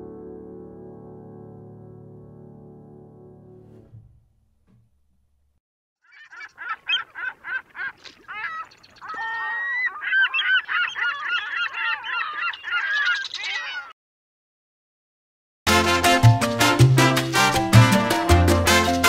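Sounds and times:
flock of birds calling: 0:06.0 - 0:14.0.

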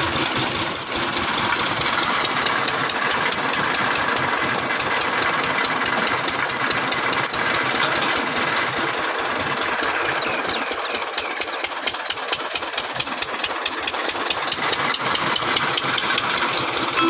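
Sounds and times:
water pump engine knocking: 0:00.0 - 0:17.0.

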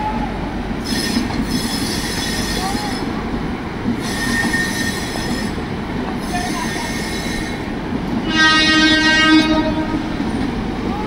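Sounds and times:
train coaches rumbling past: 0:00.0 - 0:11.0
high wheel squeal: 0:04.0 - 0:05.6
train horn: 0:08.2 - 0:10.3.

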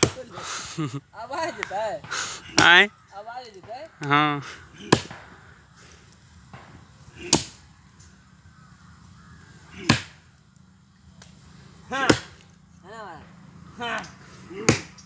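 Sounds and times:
axe chopping into roots: 0:02.1 - 0:02.8, 0:04.8 - 0:05.2, 0:07.2 - 0:07.6, 0:09.8 - 0:10.2, 0:11.9 - 0:12.4, 0:14.0 - 0:15.0.

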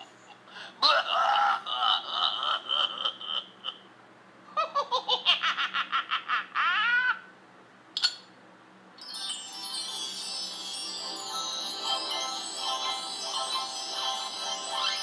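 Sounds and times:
person laughing: 0:00.8 - 0:03.8, 0:04.6 - 0:07.2.

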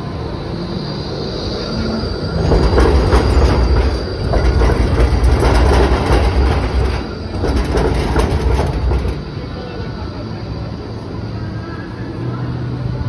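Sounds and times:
tram rumbling past: 0:00.0 - 0:13.0
wheels clacking on rails: 0:02.2 - 0:09.8.

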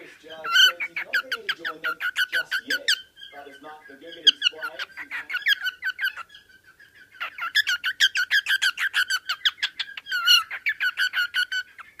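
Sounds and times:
cockatiel chirping: 0:00.0 - 0:12.0.

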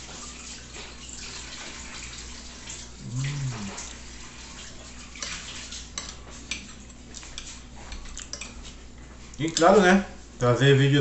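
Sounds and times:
man chewing with wet mouth sounds: 0:02.7 - 0:09.4
man humming: 0:03.0 - 0:03.9.

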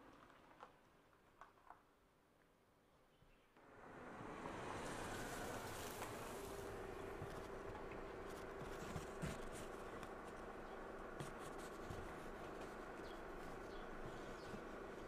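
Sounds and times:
car tyres crunching on dirt road: 0:04.1 - 0:15.0
small clicks and scratches: 0:05.8 - 0:15.0.

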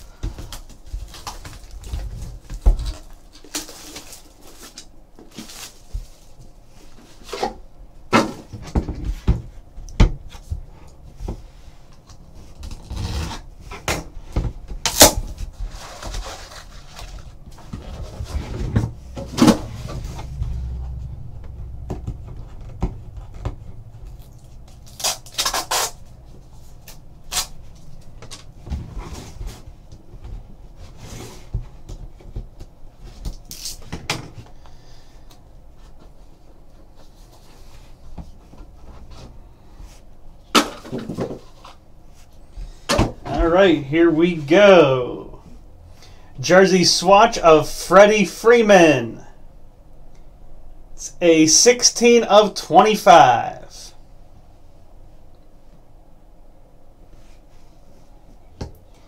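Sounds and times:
plastic shrink-wrap crinkling: 0:00.5 - 0:06.4, 0:24.1 - 0:28.5.

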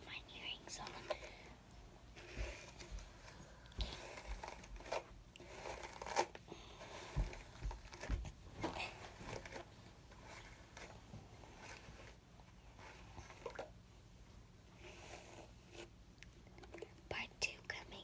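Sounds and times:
close rustling and handling: 0:00.4 - 0:13.8.

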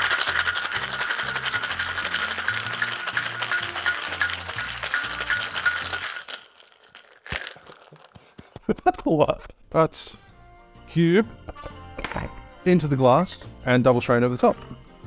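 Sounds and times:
ice rattling in cocktail shaker: 0:00.0 - 0:08.2.

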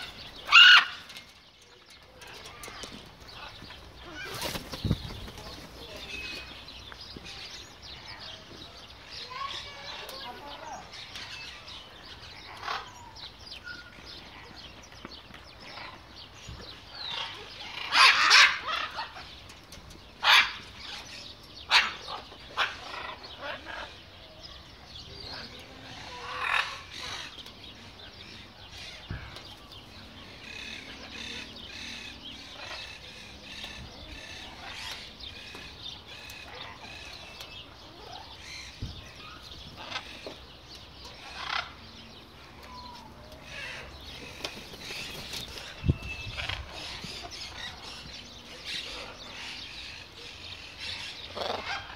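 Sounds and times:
macaws squawking: 0:00.0 - 0:01.1
soft bird calls: 0:00.0 - 0:51.9.

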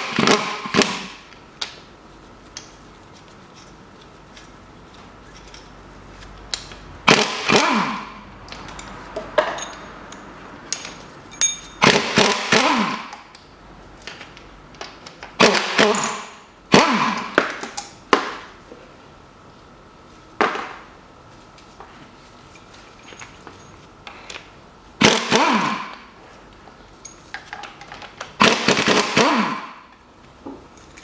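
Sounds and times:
metal tools clanking: 0:08.4 - 0:11.8, 0:22.8 - 0:23.8.

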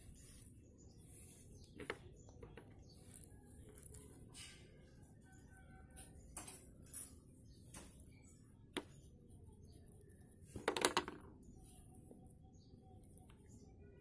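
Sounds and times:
fingers crumbling damp powder: 0:00.0 - 0:13.8.

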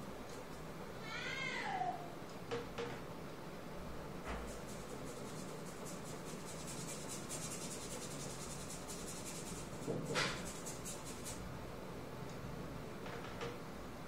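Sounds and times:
pastel scratching on paper: 0:04.4 - 0:11.4.

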